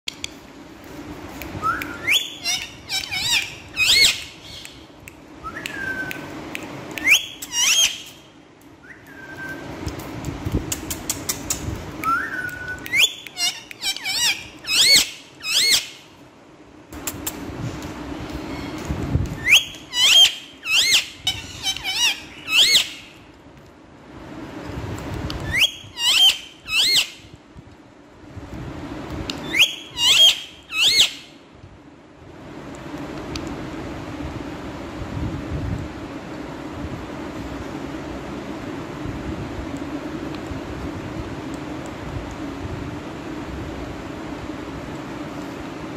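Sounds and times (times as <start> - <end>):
parakeet clicks: 1.4 - 7.6, 9.8 - 14.8
parakeet squawking: 2.0 - 4.8, 7.0 - 8.2, 12.9 - 16.0, 19.4 - 23.1, 25.5 - 27.2, 29.5 - 31.3.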